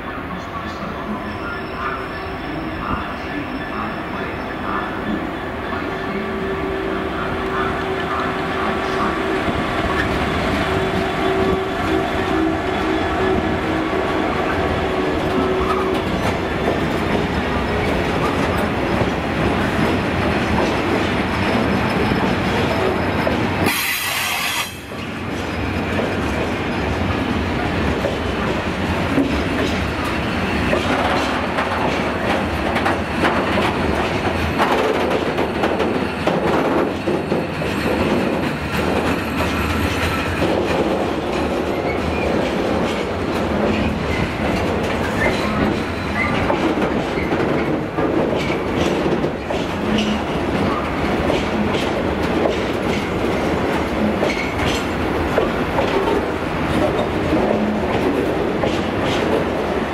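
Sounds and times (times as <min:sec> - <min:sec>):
train wheels rumbling on rail: 0:00.0 - 0:59.9
short sharp hiss: 0:23.7 - 0:24.9
wheels knocking on rail joints: 0:30.6 - 0:59.8.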